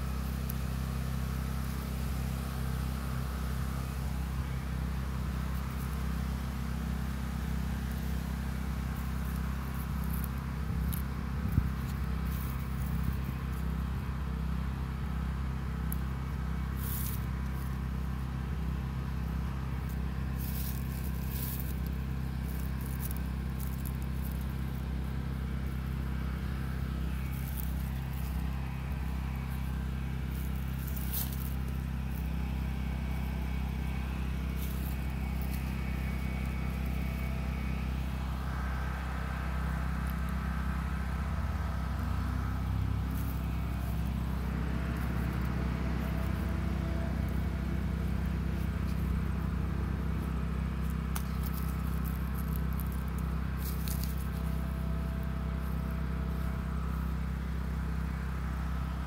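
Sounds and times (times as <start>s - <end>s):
hand rustling in garden soil: 0.0s - 59.0s
steady low hum: 0.0s - 59.0s.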